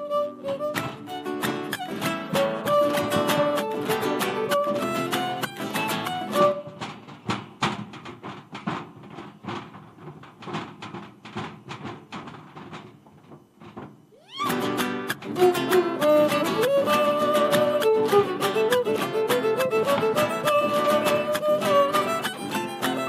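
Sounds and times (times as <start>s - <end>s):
violin sliding upward: 0.0s - 6.7s, 14.2s - 23.0s
folk violin and guitar music: 0.0s - 7.0s, 14.2s - 23.0s
boots stomping on wooden stage: 6.6s - 14.1s.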